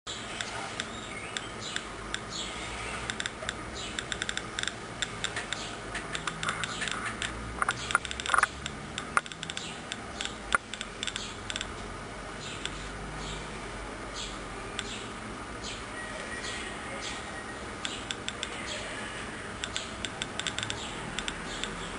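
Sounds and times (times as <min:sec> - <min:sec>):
geiger counter clicking: 0:03.0 - 0:11.8, 0:12.4 - 0:13.4, 0:17.8 - 0:18.6, 0:19.5 - 0:21.9.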